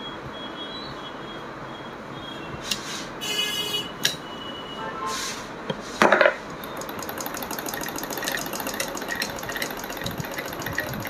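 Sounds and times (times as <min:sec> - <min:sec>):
sewing machine clattering: 0:06.6 - 0:11.0.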